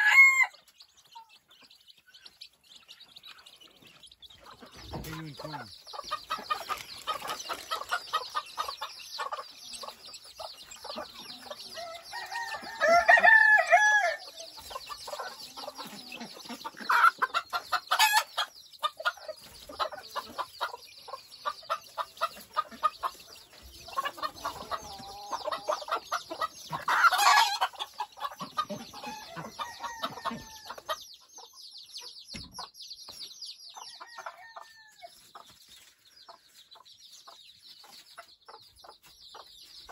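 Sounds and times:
drawn-out chicken call: 0:00.0 - 0:01.4, 0:04.4 - 0:31.0
hen clucking: 0:00.0 - 0:32.8
chicks peeping: 0:00.0 - 0:39.9.

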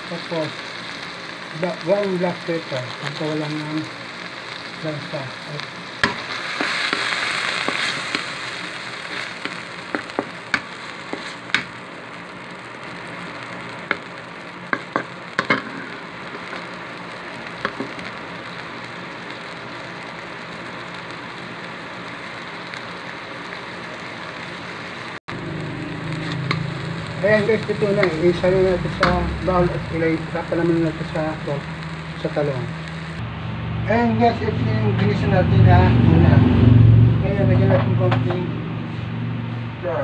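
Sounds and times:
food sizzling in oil in a wok: 0:00.0 - 0:33.5
wooden spatula scraping a pan: 0:11.0 - 0:11.7.

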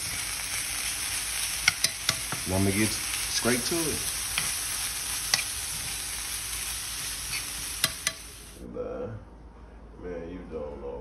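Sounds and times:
meat and peppers sizzling in a pan: 0:00.0 - 0:08.6
utensil clicking against pan: 0:01.6 - 0:02.4, 0:07.3 - 0:08.3.

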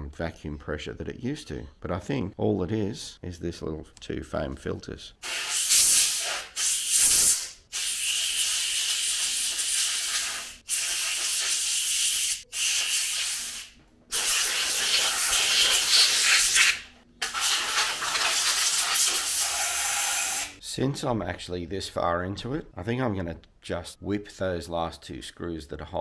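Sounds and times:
air blow gun hissing: 0:05.2 - 0:20.6.

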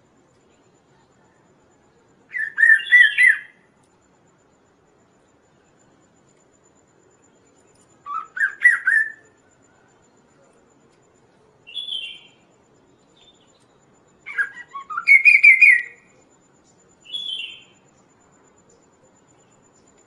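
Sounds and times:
bird whistling rapid notes: 0:14.3 - 0:16.0, 0:17.1 - 0:17.6.

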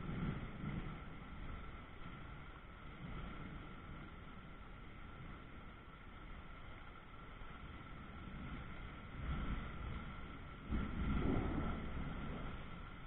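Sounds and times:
steady rain hiss: 0:00.0 - 0:13.0
low thunder rumble: 0:08.0 - 0:13.0.

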